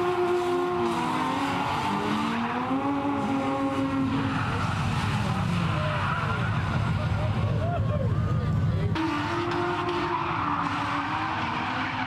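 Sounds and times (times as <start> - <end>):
car engines revving high: 0.0 - 12.0
tyres squealing and skidding: 0.0 - 12.0.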